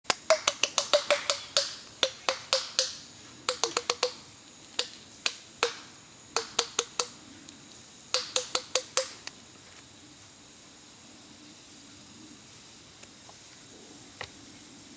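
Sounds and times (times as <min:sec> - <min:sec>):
peccary clacking its teeth: 0:00.1 - 0:04.2.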